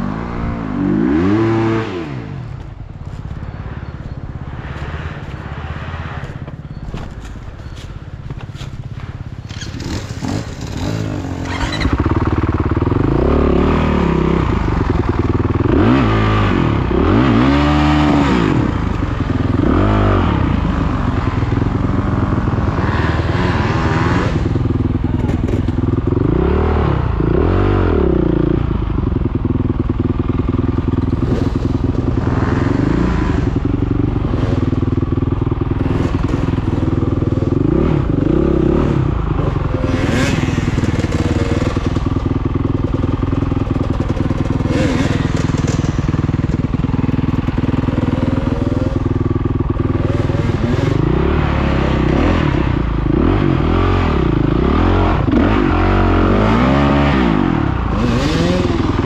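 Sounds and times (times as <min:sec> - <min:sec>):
off-road motorcycle engine revving: 0:00.0 - 0:59.0
bike knocking on stones: 0:06.3 - 0:10.3.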